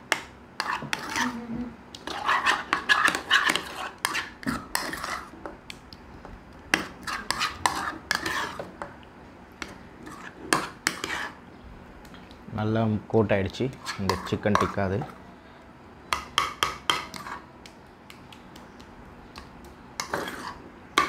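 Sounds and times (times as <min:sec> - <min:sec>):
metal spoon scraping a bowl: 0:00.6 - 0:01.4, 0:02.0 - 0:05.4, 0:06.8 - 0:08.8, 0:10.0 - 0:11.4, 0:13.7 - 0:15.2, 0:16.4 - 0:17.5, 0:20.0 - 0:21.0.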